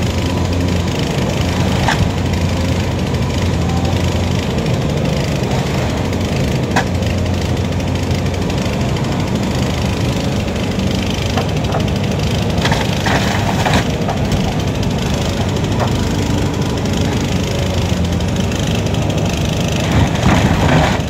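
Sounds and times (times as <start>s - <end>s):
excavator diesel engine running: 0.0s - 21.0s
debris breaking with sharp knocks: 11.3s - 16.1s, 19.6s - 21.0s.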